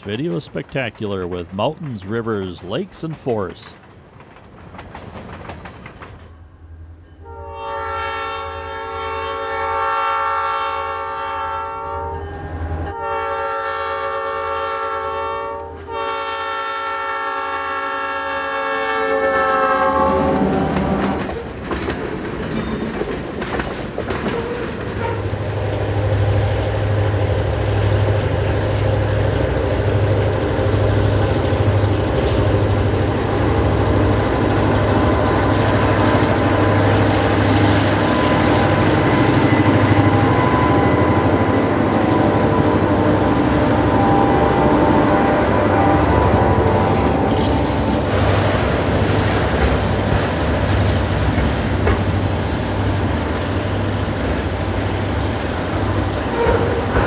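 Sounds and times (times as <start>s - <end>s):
diesel locomotive engine rumbling: 0.0s - 57.0s
diesel locomotive air horn: 7.2s - 21.2s, 38.0s - 47.6s, 56.3s - 57.0s.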